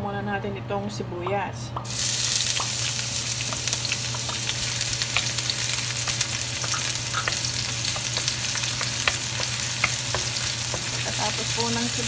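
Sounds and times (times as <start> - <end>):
onion sizzling in hot oil: 1.8 - 12.0
wooden spatula stirring: 2.5 - 12.0.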